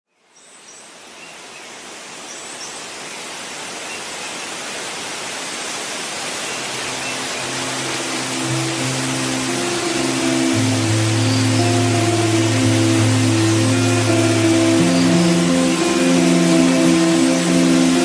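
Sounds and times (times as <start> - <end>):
waterfall rushing: 1.8 - 18.0
music: 6.9 - 18.0.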